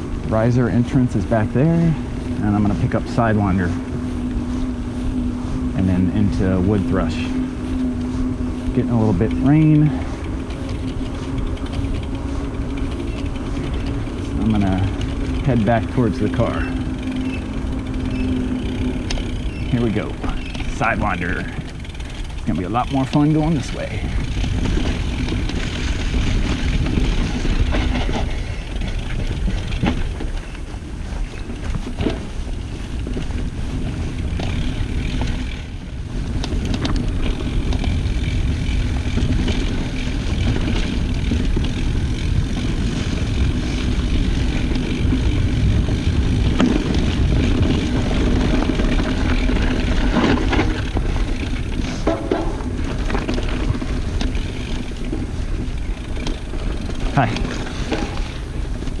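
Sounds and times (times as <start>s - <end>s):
bike rattles and knocks: 0.0s - 59.0s
tyres rolling through dry leaves: 0.0s - 59.0s
wind rushing over microphone: 0.0s - 59.0s.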